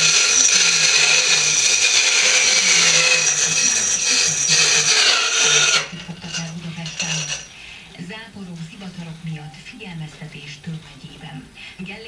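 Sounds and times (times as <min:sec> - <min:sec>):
electric motor whining: 0:00.0 - 0:07.6.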